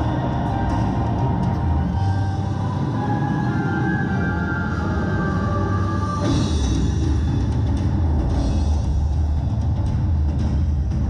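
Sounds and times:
ominous music: 0.0 - 11.0.

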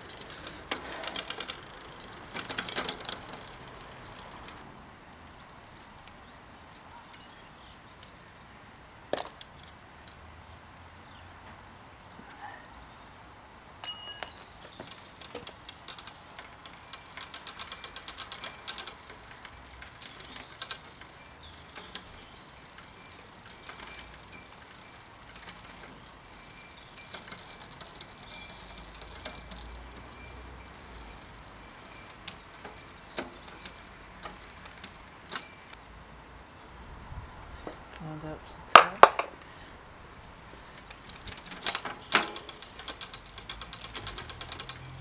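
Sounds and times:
bicycle chain running: 0.0 - 4.6, 15.2 - 35.7, 40.2 - 45.0
rapid metallic ticking: 0.0 - 4.6, 15.2 - 35.8, 40.3 - 45.0
sharp derailleur clicks: 0.0 - 4.6, 14.9 - 35.8, 40.2 - 45.0
ringing metallic ping: 13.8 - 14.5.

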